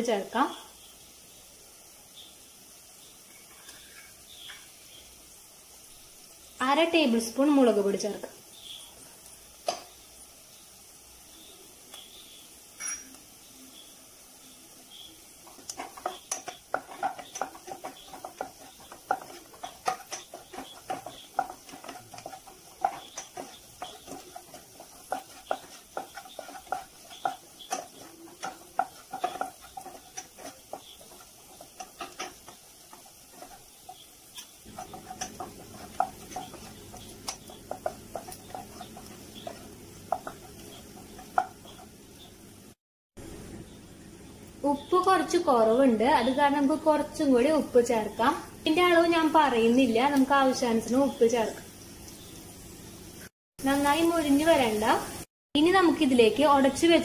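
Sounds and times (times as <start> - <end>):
onions sizzling in oil: 0.0 - 57.0
spatula scraping frying pan: 15.0 - 42.4
spatula knocking against pan: 15.5 - 42.0.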